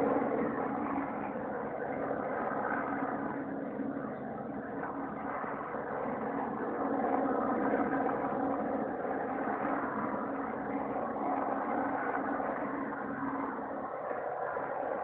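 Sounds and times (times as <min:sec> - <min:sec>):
helicopter hovering: 0:00.0 - 0:15.0.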